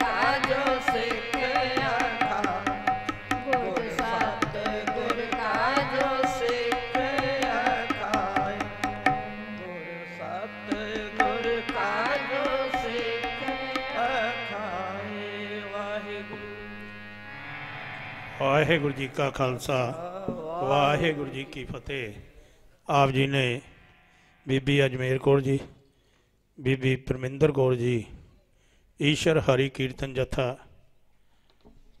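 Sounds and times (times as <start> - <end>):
women singing devotional hymn: 0.0 - 2.8, 3.4 - 16.6, 19.9 - 22.1
tabla drumming: 0.0 - 9.6, 10.5 - 14.6
harmonium chords: 0.0 - 22.2.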